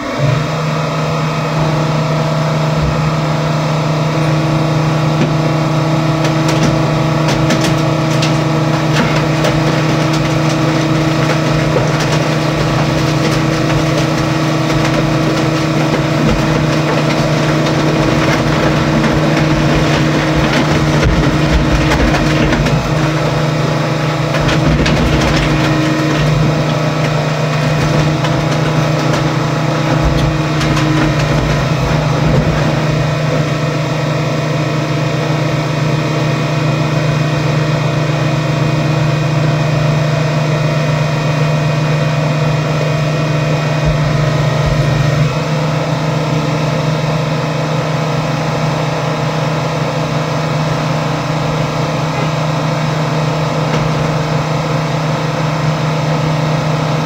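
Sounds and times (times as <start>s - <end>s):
heavy equipment engine running: 0.0s - 57.0s
metal knocks and crunches: 2.5s - 34.5s, 43.0s - 46.7s, 51.3s - 54.8s.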